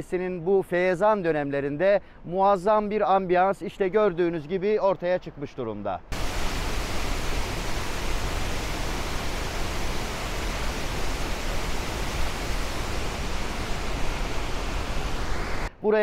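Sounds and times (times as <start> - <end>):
waterfall roaring: 6.1 - 15.7.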